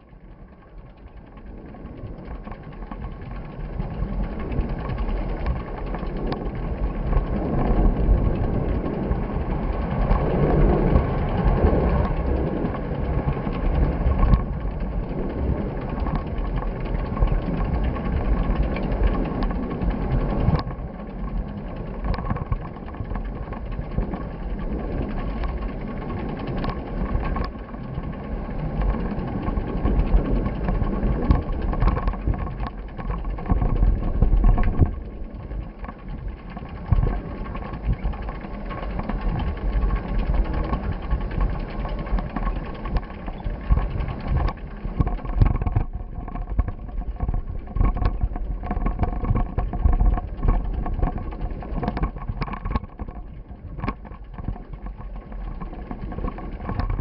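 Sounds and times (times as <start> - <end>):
faint steady whine: 0.0 - 57.0
wind rumbling on microphone: 0.0 - 57.0
small knocks and rattles: 0.4 - 57.0.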